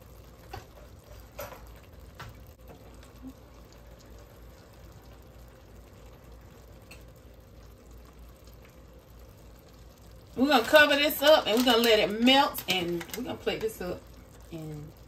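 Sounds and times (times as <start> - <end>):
pot simmering with low bubbling: 0.0 - 15.0.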